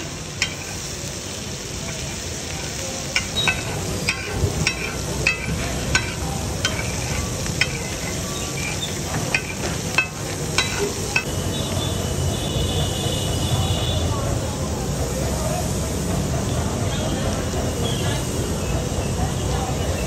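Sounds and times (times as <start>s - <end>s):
food sizzling: 0.0s - 20.0s
metal spatula clinking on griddle: 0.3s - 1.0s, 1.8s - 11.4s.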